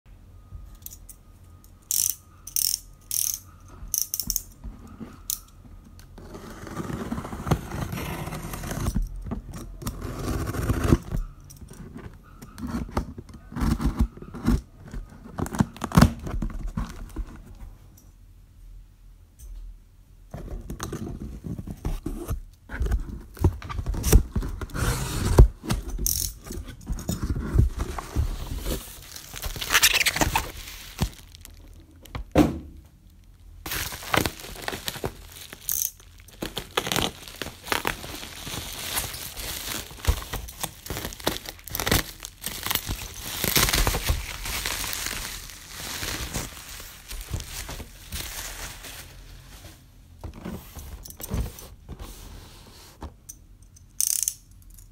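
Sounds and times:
bubble wrap crinkling: 0:27.6 - 0:32.1, 0:33.2 - 0:50.0
packing tape peeled and torn: 0:29.0 - 0:31.8, 0:33.7 - 0:48.9.

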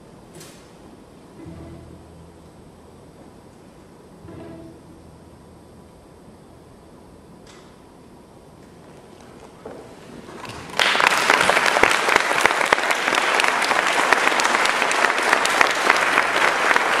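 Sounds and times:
audience applauding: 0:10.3 - 0:17.0.

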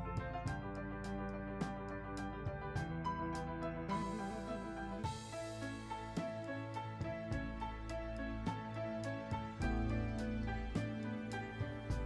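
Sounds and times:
soft instrumental music: 0:00.0 - 0:12.0.

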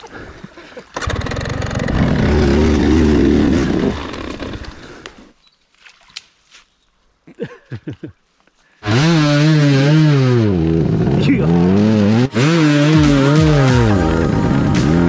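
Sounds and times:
dirt bike engine revving: 0:01.0 - 0:05.0, 0:08.8 - 0:15.0.

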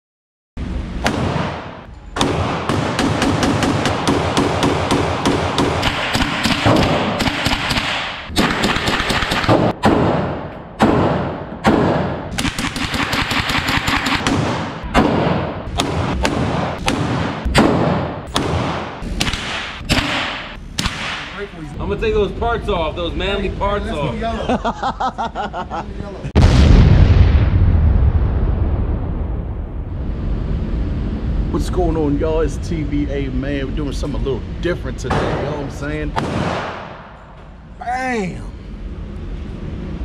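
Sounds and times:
gunshots: 0:01.0 - 0:21.4, 0:35.1 - 0:37.2.

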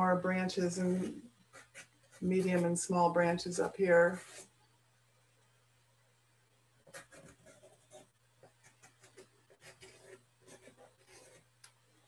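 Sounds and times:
pastel strokes scratching on paper: 0:00.8 - 0:02.7, 0:04.1 - 0:04.5, 0:06.9 - 0:11.5.

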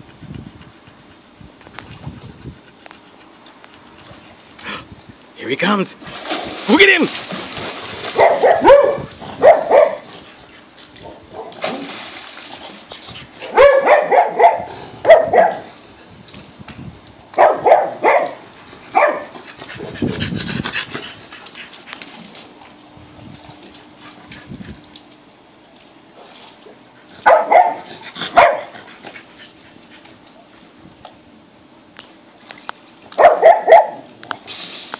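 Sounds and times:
dogs barking: 0:08.2 - 0:10.0, 0:13.4 - 0:15.7, 0:17.4 - 0:20.0, 0:27.2 - 0:28.7, 0:33.2 - 0:34.1.

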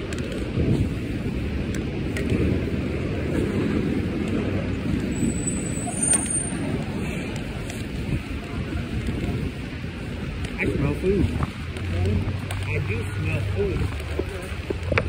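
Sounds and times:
city traffic rumble: 0:00.0 - 0:15.0
thin high squeal: 0:05.2 - 0:06.6.

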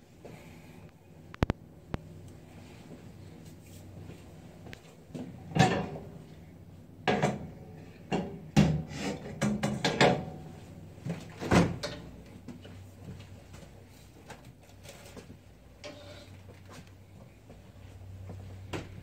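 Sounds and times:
refrigerator door opening: 0:11.4 - 0:12.0.

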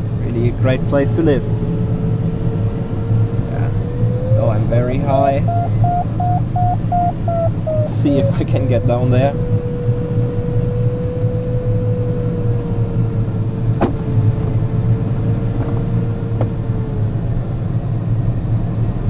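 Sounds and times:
airflow rush around cockpit: 0:00.0 - 0:19.0
mid-pitched tone sinking: 0:01.3 - 0:13.0.

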